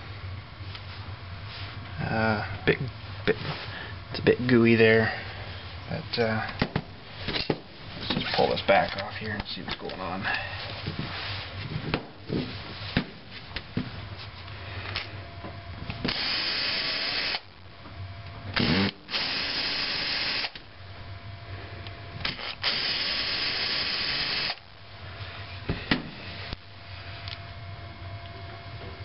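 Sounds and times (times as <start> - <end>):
cordless drill running: 16.1 - 17.5, 18.6 - 20.6, 22.2 - 24.6.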